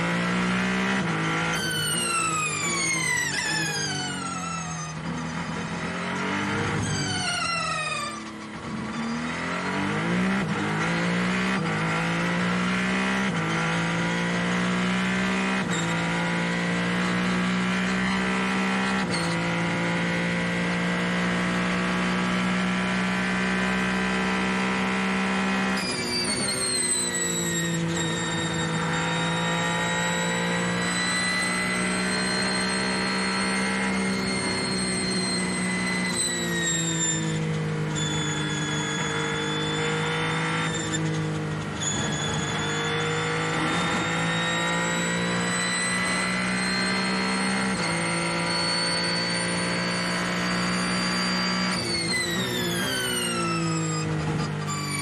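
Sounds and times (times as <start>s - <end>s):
race car engine accelerating: 0.0s - 55.0s
high-pitched whine: 25.7s - 54.2s.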